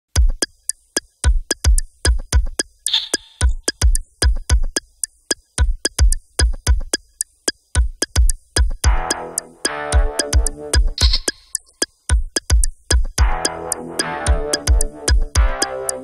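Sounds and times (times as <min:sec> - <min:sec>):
sharp clicky percussion: 0:00.1 - 0:16.0
deep kick drums: 0:00.2 - 0:00.4, 0:05.6 - 0:06.9, 0:07.8 - 0:09.1, 0:10.0 - 0:11.3, 0:12.1 - 0:13.4, 0:14.3 - 0:15.6.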